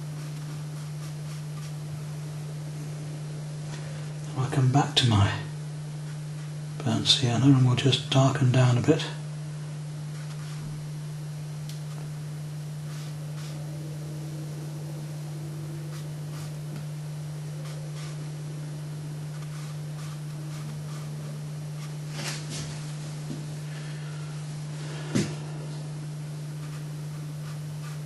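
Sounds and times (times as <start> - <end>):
brush rustling on paper: 0.0 - 1.8, 10.1 - 10.8, 12.8 - 13.7, 15.8 - 16.8, 17.6 - 18.4, 19.3 - 23.8, 26.6 - 28.0
low electrical hum: 0.0 - 28.0.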